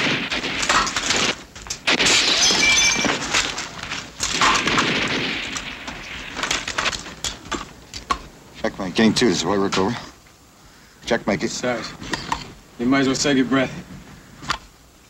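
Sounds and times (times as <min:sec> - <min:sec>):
glass breaking and debris falling: 0:00.0 - 0:08.2
sharp shots and impacts: 0:00.0 - 0:08.3.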